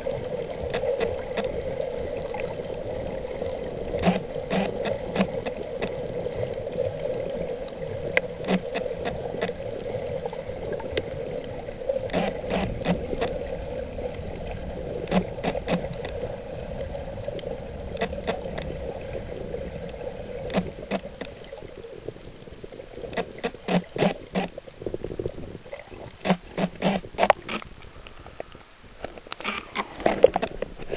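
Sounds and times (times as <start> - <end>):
sharp clicks and pops: 0.6 - 1.6, 3.9 - 6.0, 8.1 - 9.6, 12.1 - 13.4, 15.0 - 16.2, 17.9 - 18.7, 20.4 - 21.4, 23.0 - 30.9
muffled underwater hum: 3.8 - 6.1.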